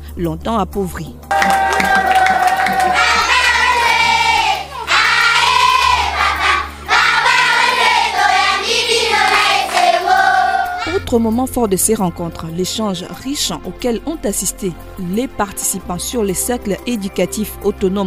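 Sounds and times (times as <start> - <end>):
children singing: 1.7 - 11.0.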